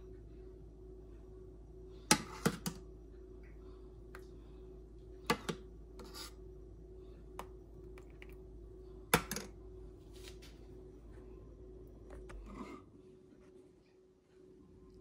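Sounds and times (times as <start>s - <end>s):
faint steady hum: 0.0s - 15.0s
utensil scraping: 6.0s - 6.4s.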